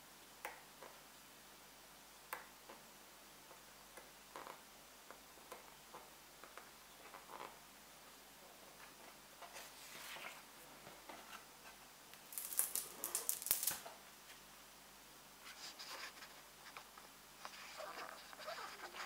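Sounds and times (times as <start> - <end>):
book pages rustling: 8.8 - 11.8.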